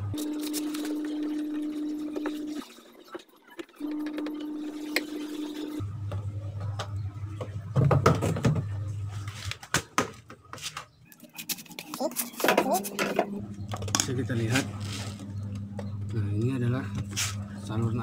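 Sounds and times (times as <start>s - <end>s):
steady hum: 12.9s - 18.0s.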